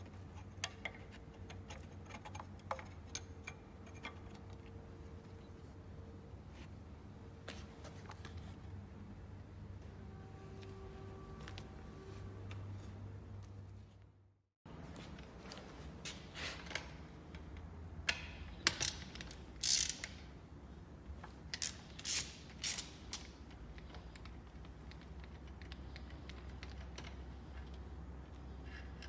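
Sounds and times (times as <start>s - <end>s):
ratchet wrench clicking: 18.1s - 20.3s, 21.5s - 24.0s.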